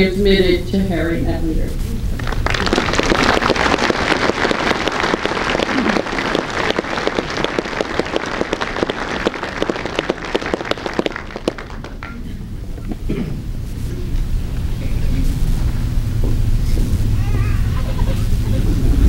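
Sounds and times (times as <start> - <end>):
audience applauding: 2.2 - 12.2.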